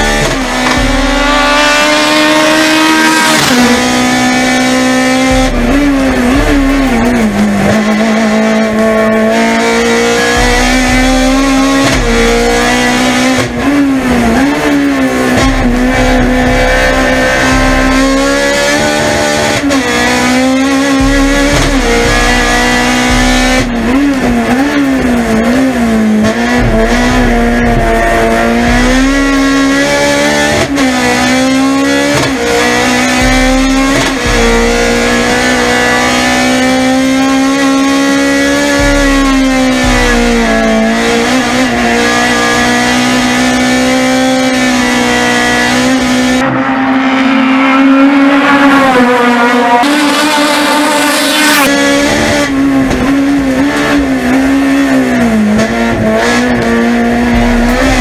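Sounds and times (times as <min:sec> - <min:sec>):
race car engine at high revs: 0:00.0 - 0:58.0.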